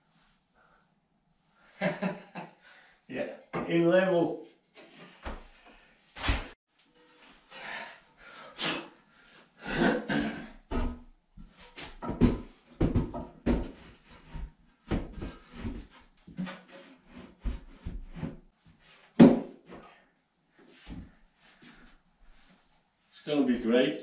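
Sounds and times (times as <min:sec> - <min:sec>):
washbasin knocking and scraping: 0:10.7 - 0:18.4.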